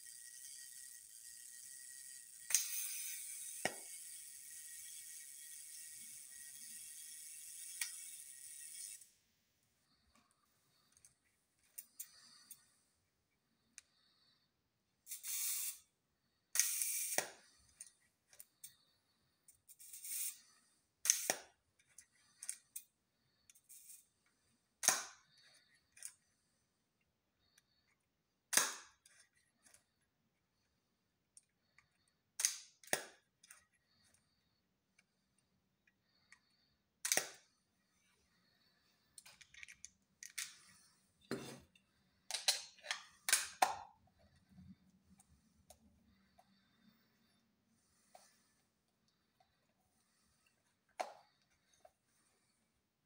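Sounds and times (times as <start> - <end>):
camera winding and dial sounds: 0.0 - 9.1, 15.1 - 15.9, 16.6 - 17.2, 19.7 - 22.8.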